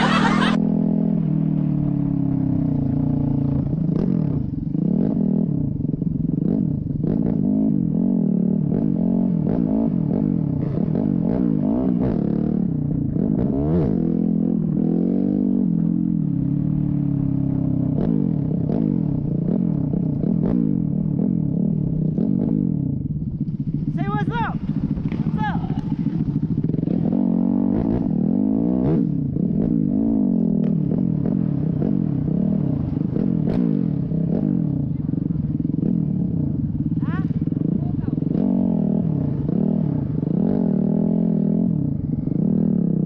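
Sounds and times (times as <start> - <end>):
dirt bike engine revving: 0.0 - 0.6, 23.6 - 43.0.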